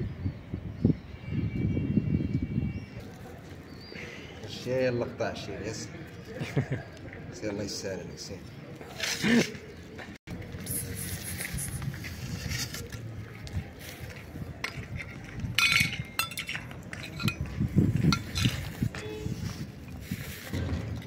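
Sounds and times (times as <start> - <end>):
scuffs and handling noise: 8.8 - 21.0
metal food bowl clinking: 14.9 - 19.1.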